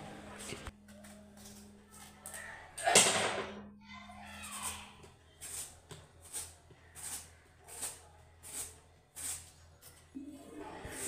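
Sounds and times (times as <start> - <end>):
vegetable peeler scraping cucumber: 4.5 - 10.0.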